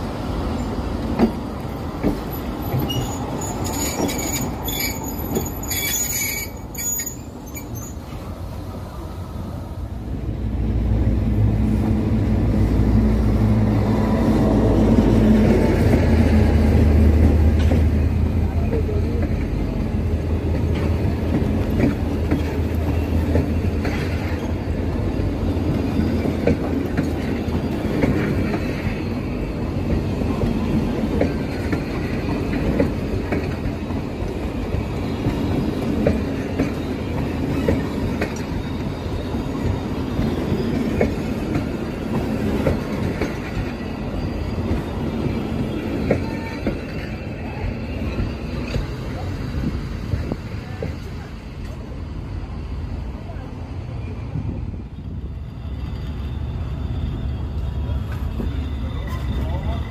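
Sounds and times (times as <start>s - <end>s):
train wheels squealing: 2.1s - 8.3s, 21.9s - 59.9s
train wheels clattering over rail joints: 29.9s - 51.8s.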